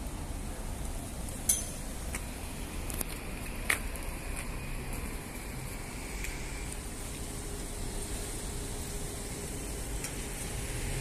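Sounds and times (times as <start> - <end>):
street low rumble: 0.0 - 11.0.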